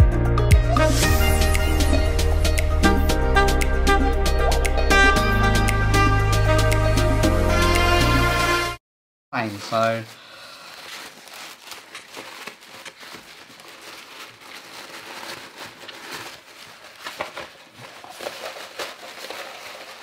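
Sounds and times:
tissue paper rustling: 9.4s - 20.0s.

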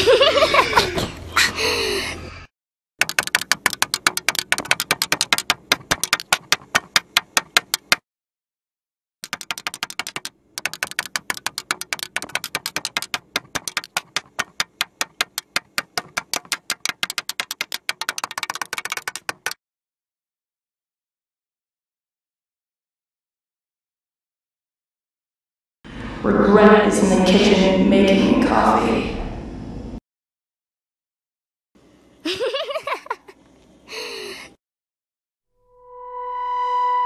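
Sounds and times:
rapid sharp clicks: 3.0s - 8.0s, 9.2s - 19.6s.

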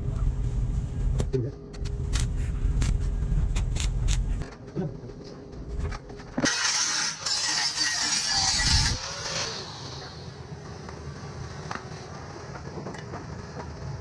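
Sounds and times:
low rumble: 0.0s - 6.4s
angle grinder cutting steel pipe: 6.5s - 10.1s.

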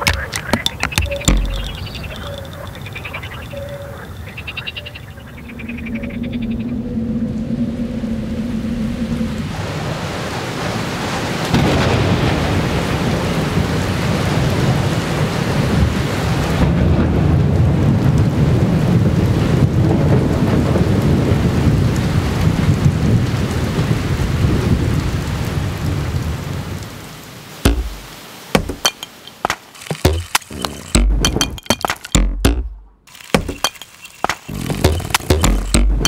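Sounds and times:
sharp clicks: 0.0s - 2.8s, 27.7s - 36.0s.

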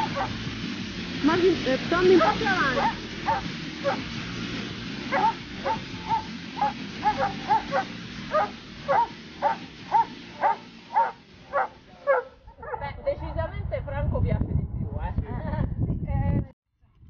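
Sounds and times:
dogs barking: 0.0s - 0.4s, 2.1s - 4.1s, 5.1s - 13.0s.

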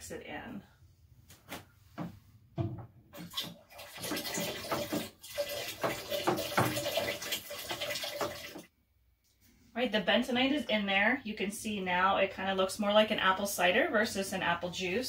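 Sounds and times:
knocks: 2.0s - 2.9s
liquid splashing and sloshing: 3.1s - 8.7s.

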